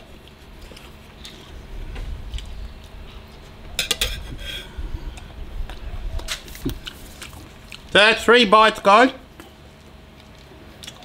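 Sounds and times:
cutlery clinking and scraping dish: 3.8s - 4.7s.

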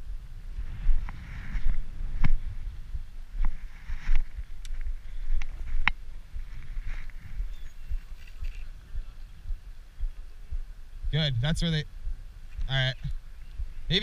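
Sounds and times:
low rumble: 0.0s - 14.0s
footsteps: 0.6s - 10.7s.

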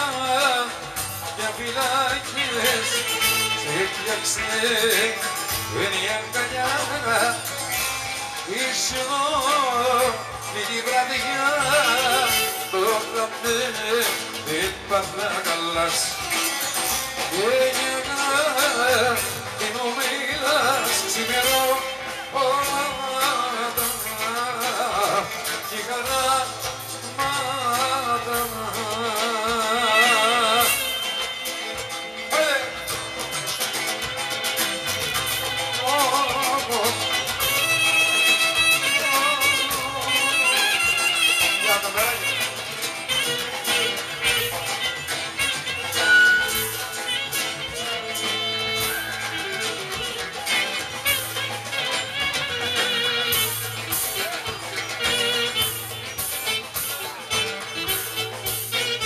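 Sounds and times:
man singing: 0.0s - 33.0s, 35.4s - 59.0s
electric guitar: 0.0s - 59.0s
clarinet: 2.2s - 13.2s, 27.0s - 59.0s.

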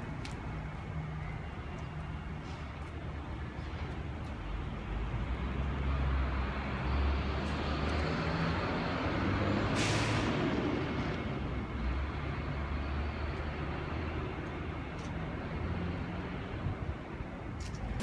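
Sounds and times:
air brakes hissing: 9.6s - 10.6s.

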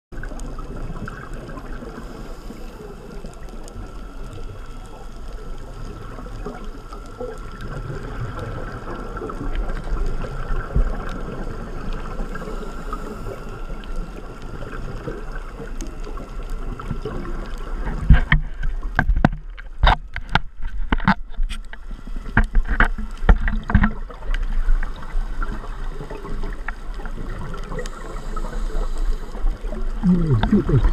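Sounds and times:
underwater water wash: 0.1s - 30.9s
scuba regulator breathing: 1.8s - 4.0s, 12.2s - 14.0s, 27.9s - 30.9s
exhaled bubbles bursting: 29.7s - 30.9s.

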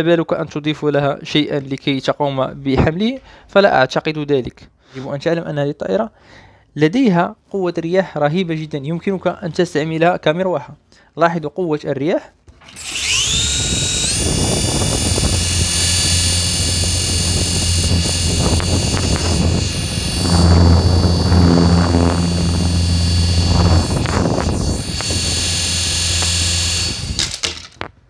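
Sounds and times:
toy helicopter rotors whining: 12.6s - 27.9s.

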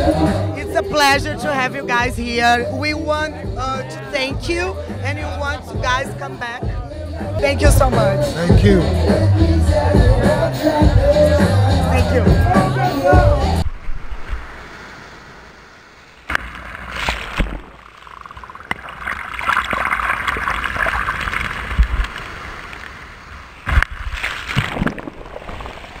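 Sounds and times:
ocean surf on beach: 13.6s - 18.1s, 20.2s - 26.0s.

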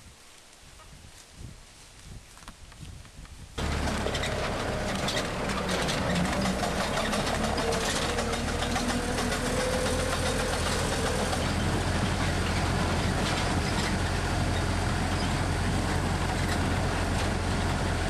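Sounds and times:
small rattles: 3.6s - 17.7s
tram engine running: 3.6s - 18.0s.

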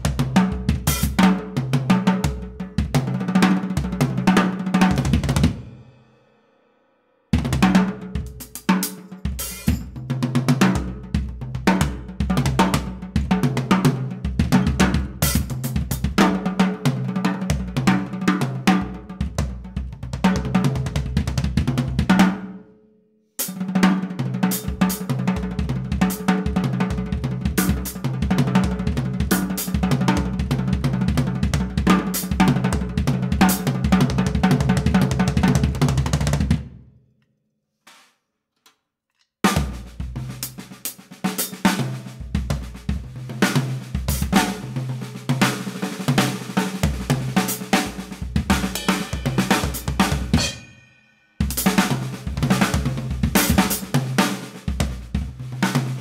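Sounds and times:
drum kit solo: 0.0s - 6.5s, 7.3s - 22.4s, 23.4s - 36.8s, 39.4s - 56.0s
cymbals: 9.3s - 10.0s, 46.6s - 54.5s.

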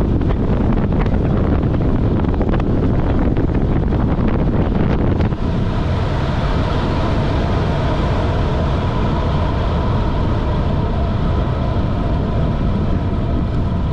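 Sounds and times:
wind buffeting microphone: 0.0s - 13.9s.

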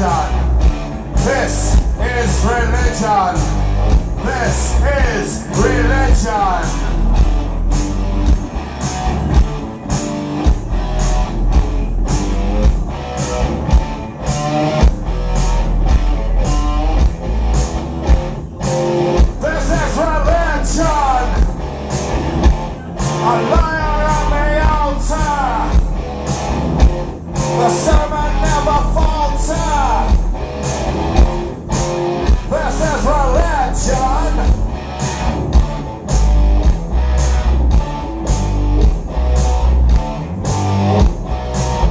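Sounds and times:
man singing lead vocal: 0.0s - 0.5s, 1.2s - 3.5s, 4.2s - 7.0s, 19.4s - 21.5s, 23.1s - 25.8s, 27.5s - 30.2s, 32.5s - 34.6s
rock band playing: 0.0s - 41.9s.

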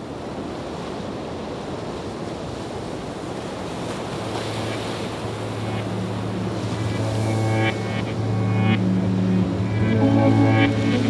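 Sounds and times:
steady rushing noise: 4.0s - 11.0s.

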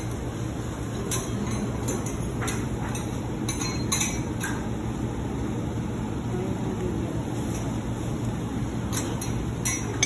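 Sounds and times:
kitchen clicks and clinks: 0.0s - 4.8s, 8.8s - 10.0s
kitchen equipment hum: 0.0s - 10.0s.

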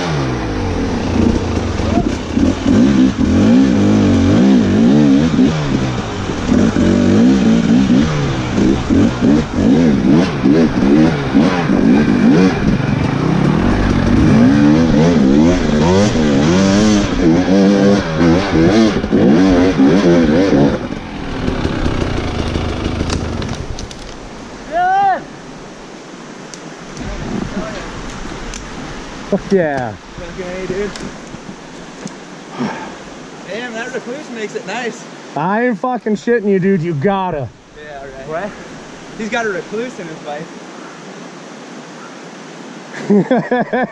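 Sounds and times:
dirt bike engine revving: 0.0s - 23.7s.

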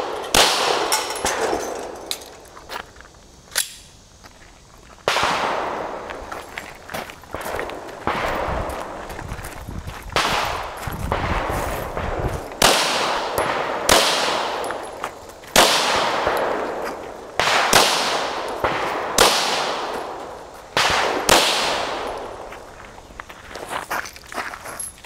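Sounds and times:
pistol shots: 0.0s - 2.3s, 5.1s - 6.1s, 10.2s - 22.5s.

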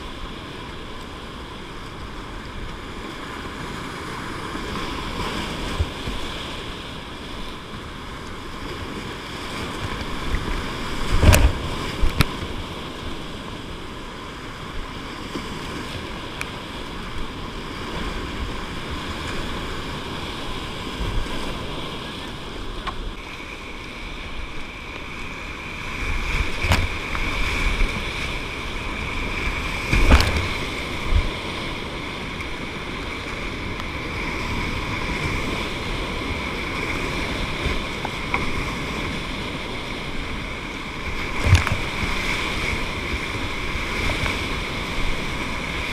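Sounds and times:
sharp knocks and splashes: 9.9s - 12.5s, 26.3s - 27.4s, 29.8s - 31.3s, 41.3s - 42.2s
whitewater rapids rushing: 15.8s - 45.9s.

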